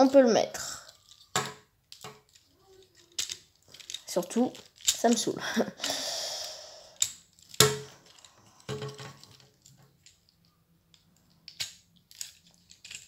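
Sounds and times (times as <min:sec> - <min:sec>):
plastic toy parts clicking: 0:00.8 - 0:06.0, 0:07.0 - 0:13.0.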